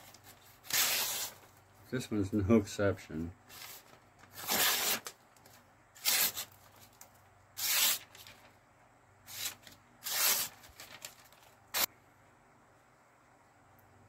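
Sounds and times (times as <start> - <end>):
knife slicing paper: 0.2 - 1.5, 3.5 - 5.1, 6.0 - 6.6, 7.6 - 8.4, 9.3 - 11.9.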